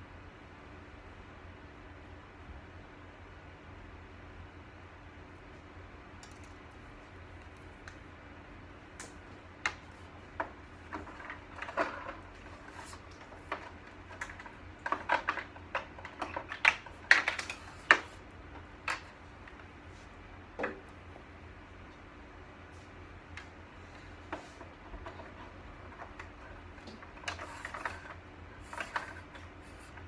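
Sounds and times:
low steady hum: 0:00.0 - 0:30.0
plastic and metal parts clicking: 0:09.0 - 0:19.1.

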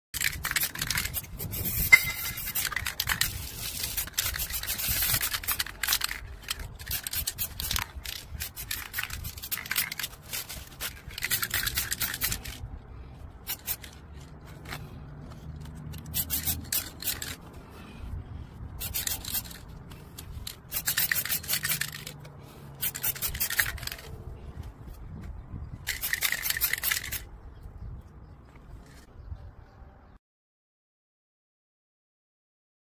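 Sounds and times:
spray paint cans hissing: 0:00.2 - 0:12.6, 0:13.4 - 0:14.0, 0:16.0 - 0:17.4, 0:18.8 - 0:24.1, 0:25.8 - 0:27.2.

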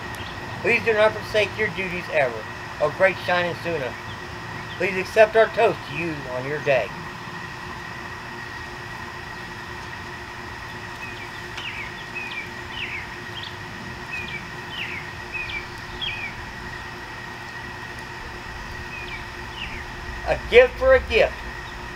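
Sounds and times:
steady background hum: 0:00.0 - 0:21.9
songbird chirping: 0:10.6 - 0:20.4.

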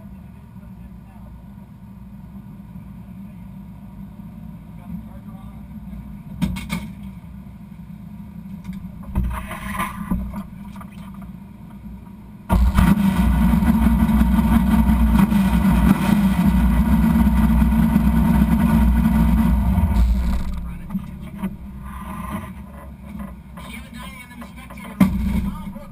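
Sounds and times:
race car engine idling: 0:07.0 - 0:25.9
low rumble: 0:08.6 - 0:10.9, 0:11.8 - 0:23.6, 0:25.1 - 0:25.9
knocks: 0:08.7 - 0:10.5.

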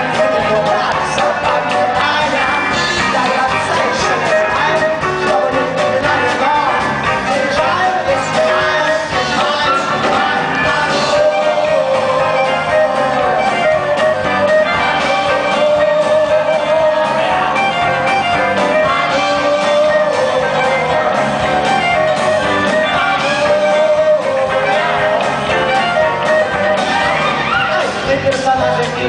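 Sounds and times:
guitar: 0:00.0 - 0:29.0
live rock band playing: 0:00.0 - 0:29.0
wavering melody line: 0:07.9 - 0:28.0.

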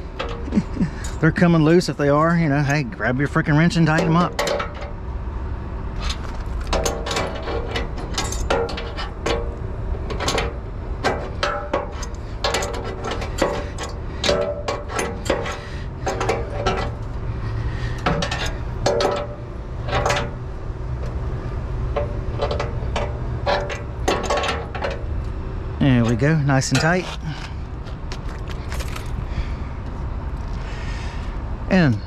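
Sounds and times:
wrench and pliers clinking on metal: 0:00.2 - 0:01.3, 0:06.0 - 0:17.0.

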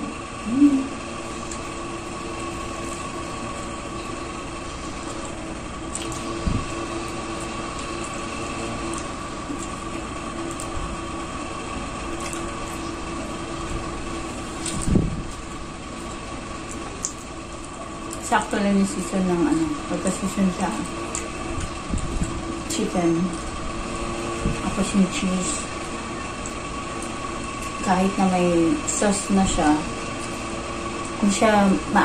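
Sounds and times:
machine hum: 0:00.0 - 0:32.0
chewing clicks: 0:01.4 - 0:01.8, 0:05.0 - 0:06.3, 0:08.8 - 0:10.8, 0:12.1 - 0:13.0, 0:14.5 - 0:18.3, 0:25.8 - 0:27.8.

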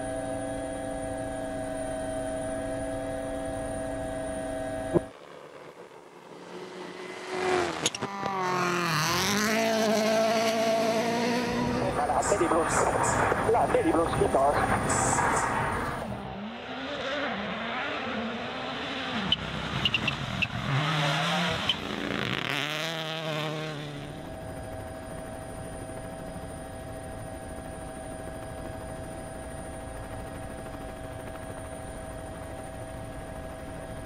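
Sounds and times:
rally car engine revving: 0:06.3 - 0:24.3.

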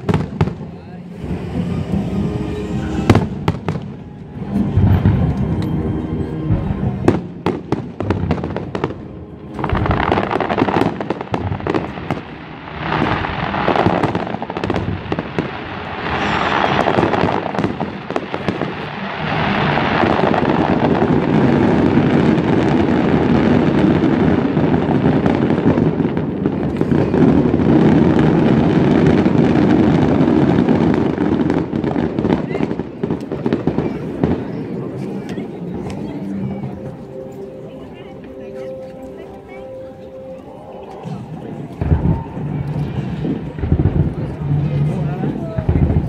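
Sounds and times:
fireworks crackling and booming: 0:00.0 - 0:46.0.

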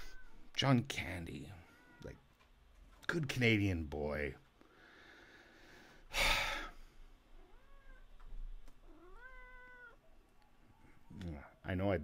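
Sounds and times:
cat meowing: 0:00.0 - 0:00.5, 0:01.6 - 0:02.2, 0:07.4 - 0:08.2, 0:08.8 - 0:11.0.

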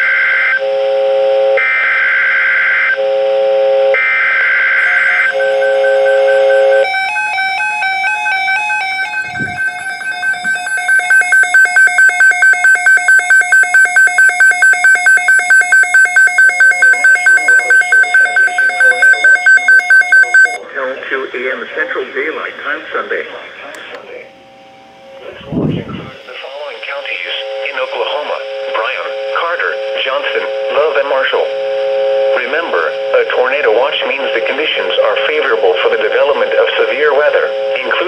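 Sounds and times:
warbling radio alarm beeping: 0:03.8 - 0:20.6
harsh digital data tones: 0:04.6 - 0:20.6
low beeping tone: 0:06.8 - 0:20.6.

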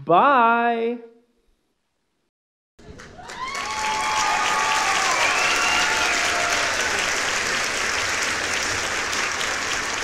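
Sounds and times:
crowd applauding: 0:02.8 - 0:10.0
voices cheering: 0:03.1 - 0:08.2.

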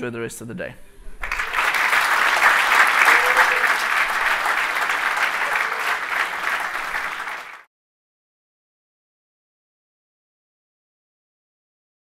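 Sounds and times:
audience applauding: 0:01.2 - 0:07.7.

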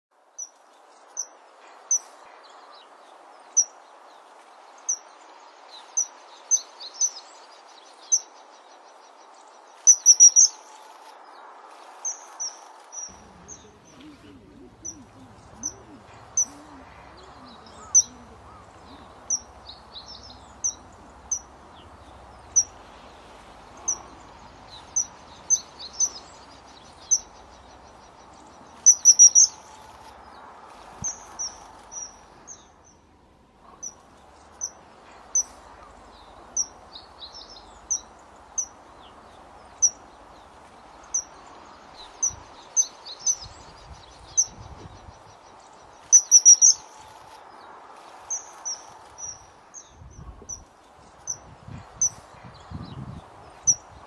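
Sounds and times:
steady hiss: 0:00.2 - 0:54.0
kingfisher calling: 0:09.9 - 0:10.5, 0:13.0 - 0:29.7, 0:46.1 - 0:46.8.

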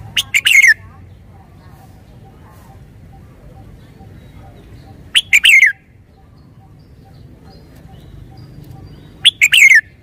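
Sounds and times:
bird singing whistled notes: 0:00.1 - 0:00.8, 0:03.1 - 0:10.0.

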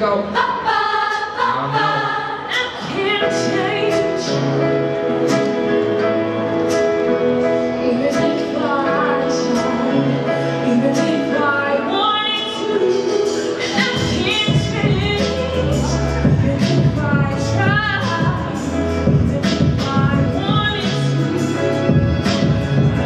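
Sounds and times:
choir singing chords: 0:00.0 - 0:12.0
woman singing into microphone: 0:00.2 - 0:06.4, 0:07.6 - 0:23.0.

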